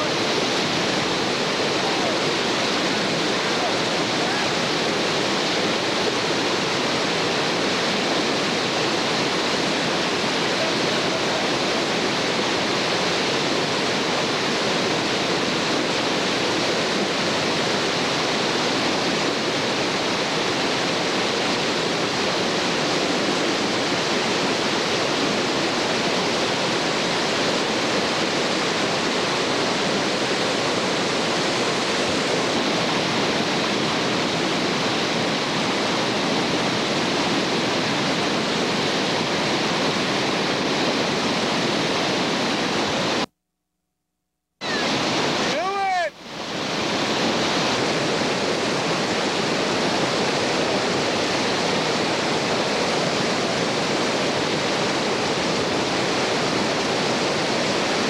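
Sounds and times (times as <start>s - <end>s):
whitewater rapids roaring: 0.0s - 43.3s, 44.6s - 58.0s.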